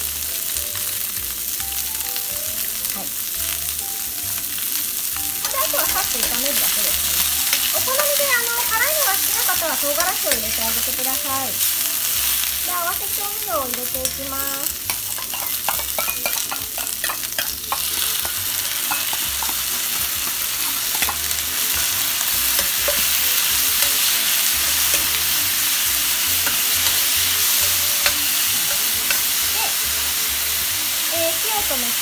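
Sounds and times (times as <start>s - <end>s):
food sizzling in a frying pan: 0.0s - 32.0s
metal ladle clinking and scraping: 14.9s - 29.4s.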